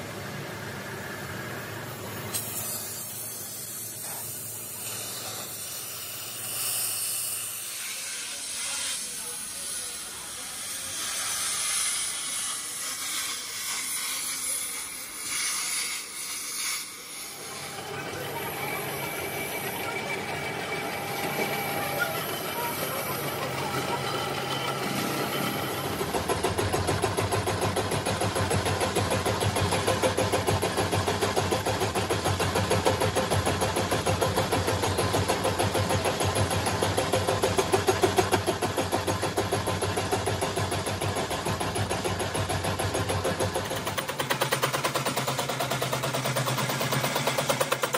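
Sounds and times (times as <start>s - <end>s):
machine tool droning: 0.0s - 47.9s.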